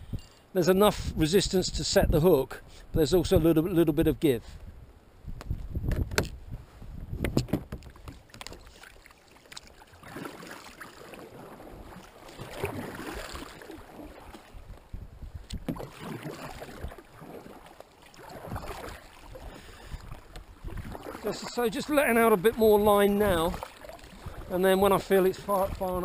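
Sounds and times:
kayak paddle strokes: 7.2 - 26.0
water splashing: 7.8 - 14.8, 15.4 - 26.0.

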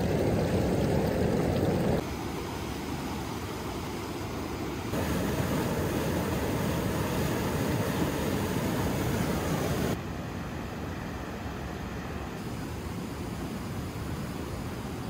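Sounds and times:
whitewater rapids roaring: 5.0 - 10.0.

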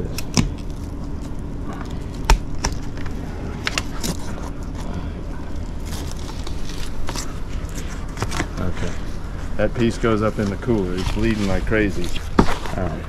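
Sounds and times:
fish backbone cracking: 0.0 - 4.9
steady low rumble: 0.0 - 13.0.

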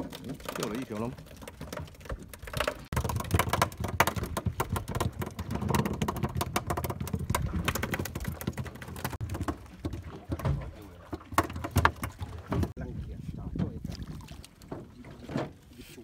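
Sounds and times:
fish flapping: 0.0 - 10.4.

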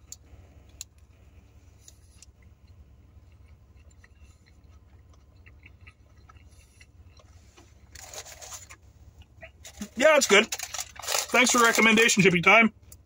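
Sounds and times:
low steady hum: 0.0 - 13.0
chewing food: 0.1 - 10.0.

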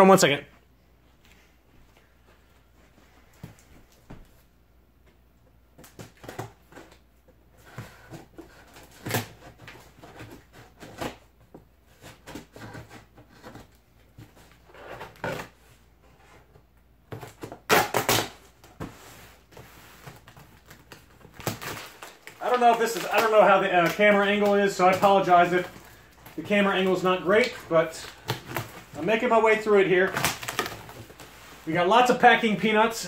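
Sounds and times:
packing tape tearing: 8.5 - 11.2, 17.2 - 18.5, 20.0 - 29.1, 30.0 - 31.3.

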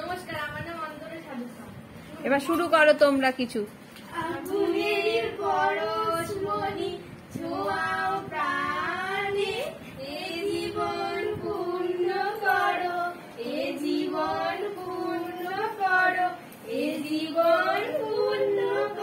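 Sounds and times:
girls singing: 4.0 - 19.0.

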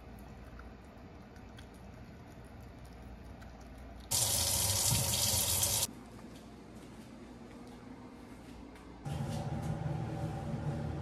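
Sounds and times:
faucet running into sink: 4.1 - 5.9.

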